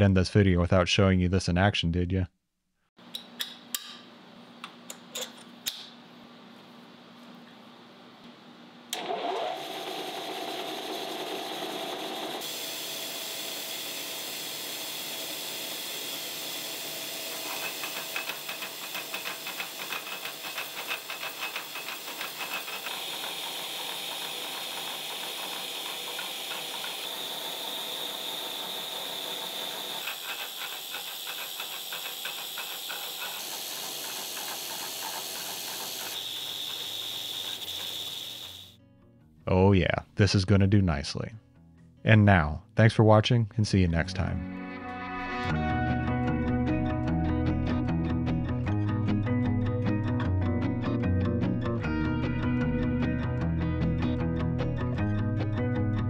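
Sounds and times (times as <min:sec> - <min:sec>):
saw cutting metal: 0:09.4 - 0:38.7.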